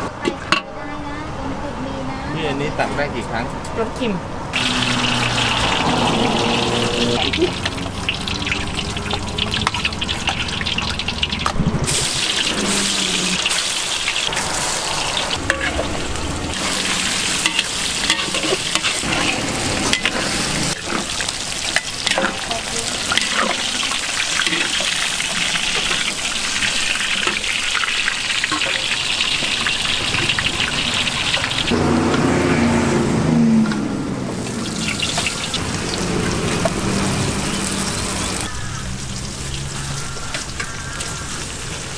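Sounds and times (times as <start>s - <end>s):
tofu sizzling in hot oil: 6.4s - 31.7s.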